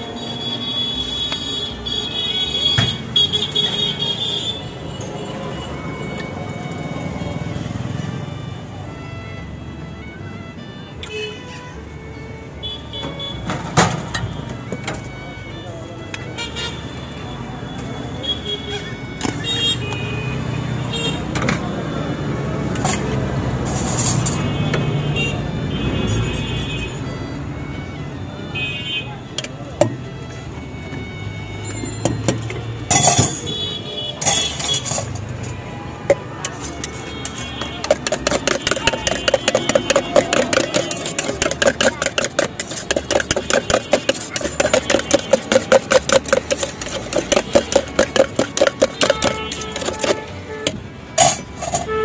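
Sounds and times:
street traffic hum: 0.0 - 52.0
ladle clinking against steel cups: 31.7 - 52.0.

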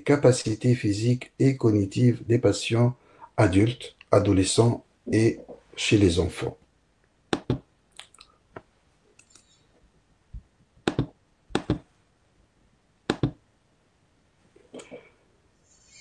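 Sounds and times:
mouse and keyboard clicks: 7.3 - 7.6, 10.9 - 11.8, 13.1 - 13.4.

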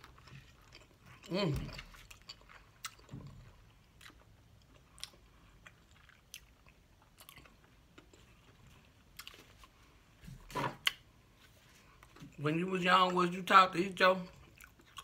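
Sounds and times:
mouth chewing with wet smacks: 0.0 - 9.4, 14.4 - 15.0.

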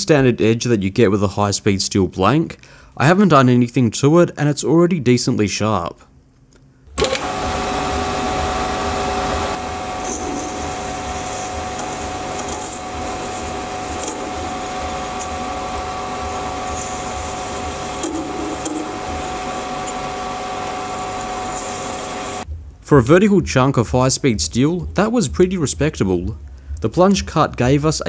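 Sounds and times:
lathe motor whine: 7.0 - 22.4.

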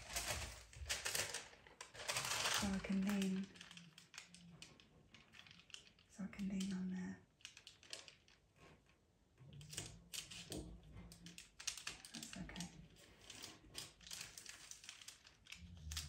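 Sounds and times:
paper rustling and crinkling: 0.0 - 6.1, 9.7 - 16.0.

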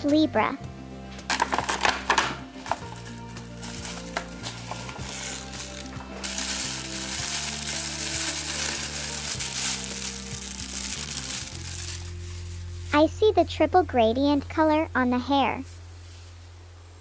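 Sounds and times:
background music: 0.0 - 16.4
plastic bag crinkling: 2.6 - 13.0.

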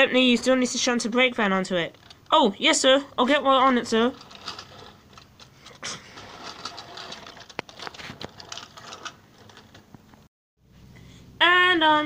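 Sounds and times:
toy trains clicking on track: 6.2 - 9.6.

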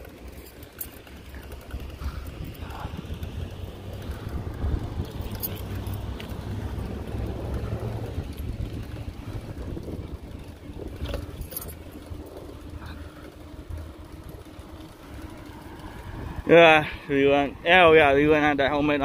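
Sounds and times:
bicycle rolling on concrete: 0.0 - 19.0
wind rumble on microphone: 1.8 - 13.2, 16.0 - 16.6.

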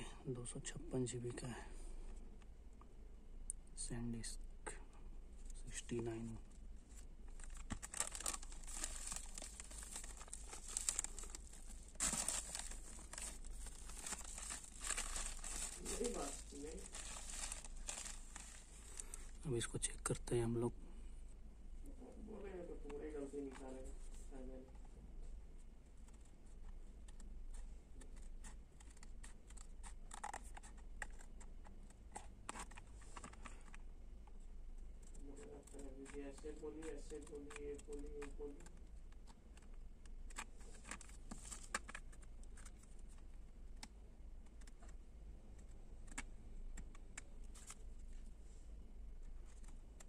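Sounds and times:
plastic bag and bubble wrap crinkling: 6.9 - 19.5
scissors cutting plastic packaging: 7.4 - 19.1.

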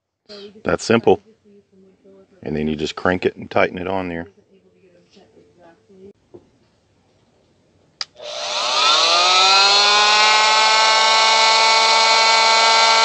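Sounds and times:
oscillating multi-tool motor running: 8.2 - 13.0.

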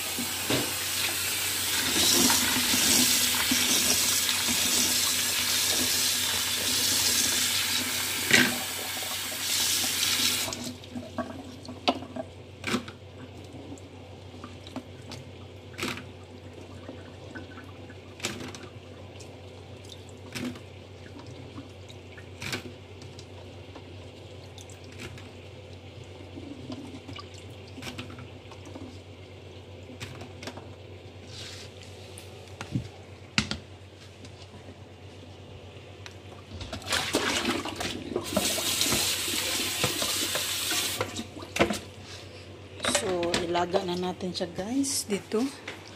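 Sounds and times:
tap running into a bowl: 0.1 - 0.8, 39.8 - 41.8.

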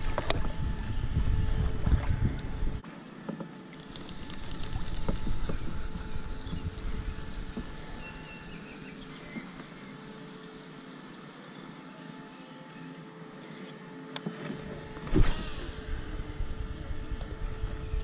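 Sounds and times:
wind buffeting microphone: 0.0 - 2.8, 4.4 - 8.5, 15.0 - 18.0
distant motorboat engine hum: 0.0 - 18.0
fishing rod swish and reel whir: 13.5 - 18.0.

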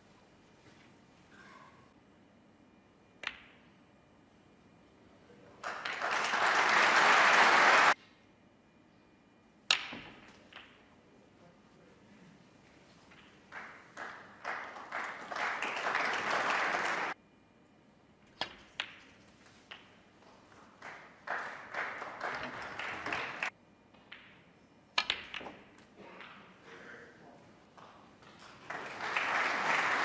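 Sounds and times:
audience applause: 5.6 - 8.0, 13.6 - 17.2, 20.8 - 23.5, 28.6 - 30.0
snooker balls clicking: 18.3 - 20.6, 23.9 - 26.6.

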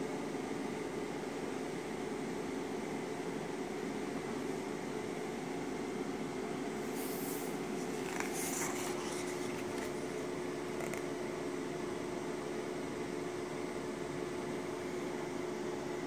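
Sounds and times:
steady background hum: 0.0 - 16.0
paper page turning: 7.0 - 11.1.

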